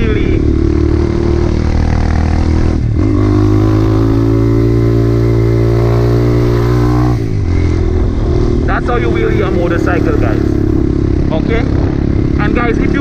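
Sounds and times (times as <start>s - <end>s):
dirt bike engine running: 0.0s - 13.0s.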